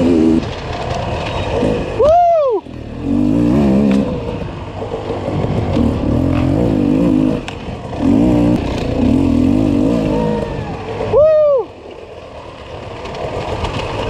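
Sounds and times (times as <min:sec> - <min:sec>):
dirt bike engine revving: 0:00.0 - 0:00.5, 0:01.4 - 0:11.2.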